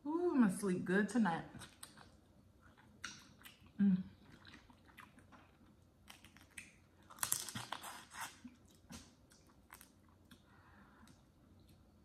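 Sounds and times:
chewing: 1.5s - 11.8s
crawfish shells crackling: 4.3s - 8.1s.

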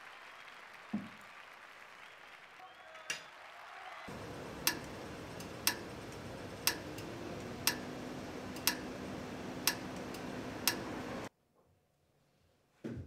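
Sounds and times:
crossing signal ticking: 4.1s - 11.3s
street hum: 4.1s - 11.3s.

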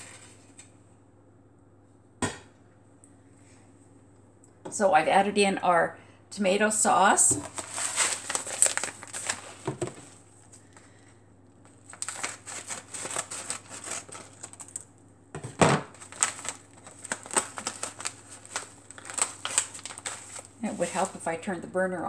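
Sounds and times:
scissors cutting paper packet: 7.4s - 10.0s, 11.9s - 14.8s, 15.9s - 21.2s
paper crinkling: 7.4s - 10.8s, 11.6s - 14.9s, 15.8s - 21.3s.

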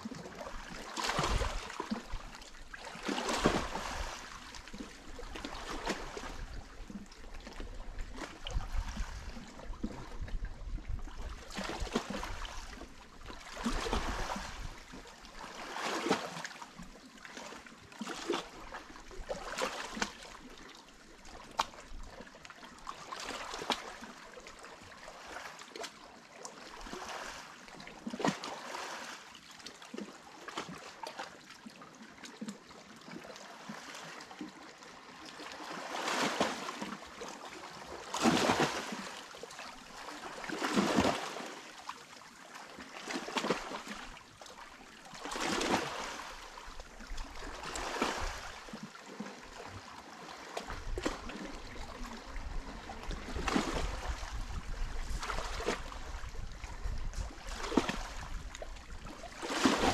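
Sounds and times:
sea waves splashing on shore: 0.3s - 6.4s, 13.4s - 14.7s, 35.5s - 41.8s, 45.1s - 46.6s, 47.3s - 48.8s, 59.2s - 59.9s.

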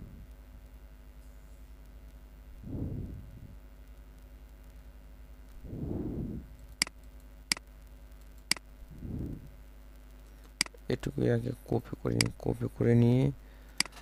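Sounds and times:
faint steady hum: 0.0s - 14.0s
soft low rushes of noise: 1.8s - 6.8s, 8.7s - 10.2s.

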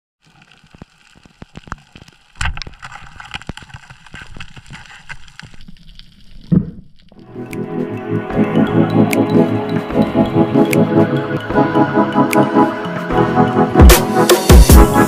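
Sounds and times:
underwater crackle of clicks: 0.2s - 8.0s.

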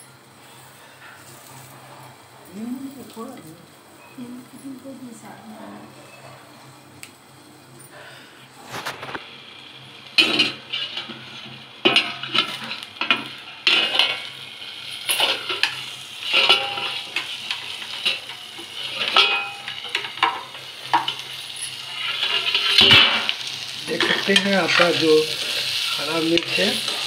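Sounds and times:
chillies sizzling in pan: 0.0s - 27.0s
metal spoon clinking on pan: 15.0s - 23.4s.

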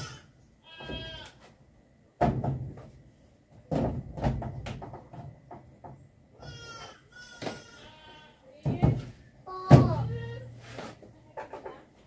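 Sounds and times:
loud knocks and clatter: 2.2s - 2.9s, 3.7s - 6.0s, 8.6s - 10.2s.

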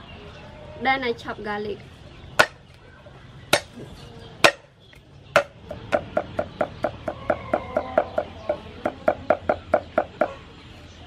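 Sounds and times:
cleaver chopping on wooden block: 2.4s - 2.6s, 3.5s - 3.7s, 4.4s - 4.7s, 5.4s - 10.3s.

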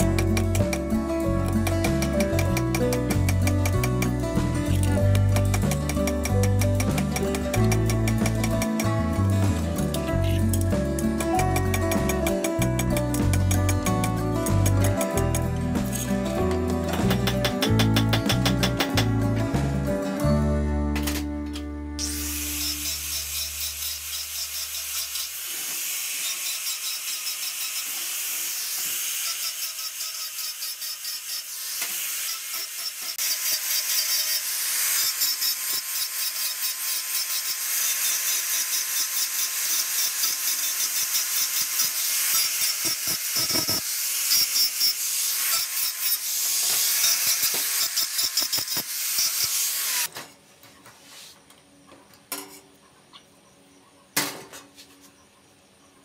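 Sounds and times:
angle grinder grinding steel: 0.0s - 16.2s, 22.0s - 50.1s.

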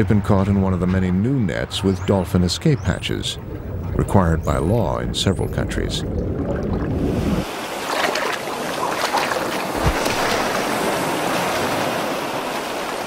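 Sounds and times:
open water rushing: 0.0s - 13.0s
water splashing and churning: 0.8s - 13.0s
low rumble: 1.6s - 7.4s.

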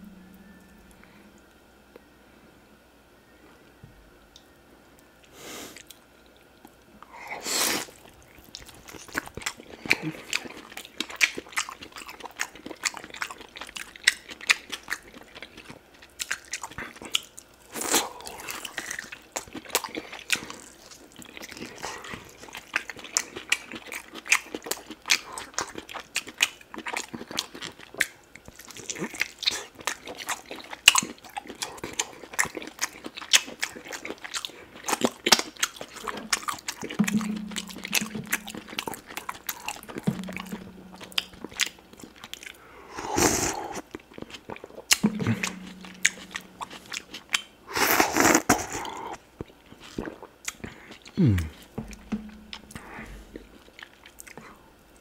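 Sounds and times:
short low hum: 0.0s - 2.3s, 37.0s - 42.0s
person chewing: 7.4s - 54.6s.

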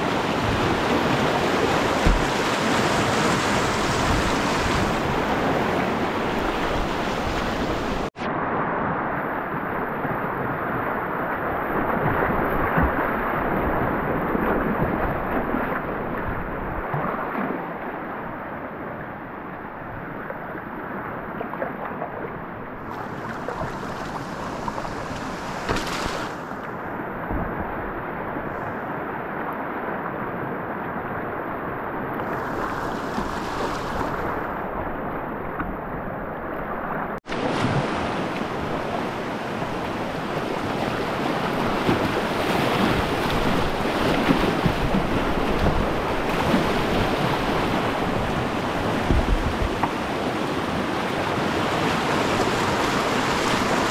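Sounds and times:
river rapids rushing and splashing: 0.0s - 8.4s, 37.2s - 53.9s.

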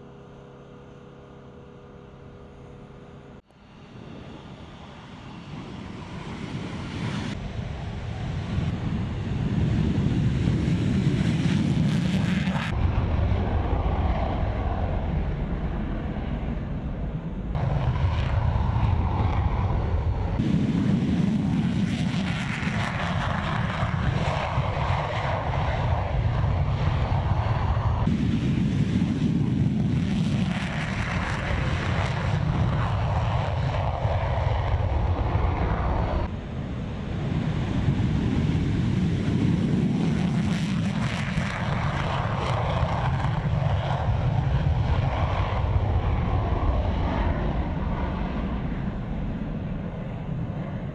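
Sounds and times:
fighter jet roaring on takeoff: 0.0s - 50.9s.

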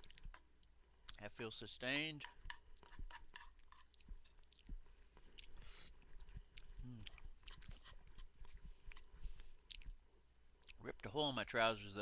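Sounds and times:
man chewing: 0.0s - 1.2s, 2.2s - 10.8s.

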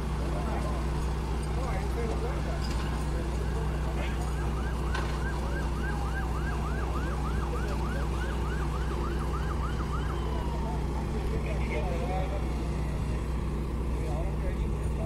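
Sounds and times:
siren yelping: 3.4s - 11.2s.

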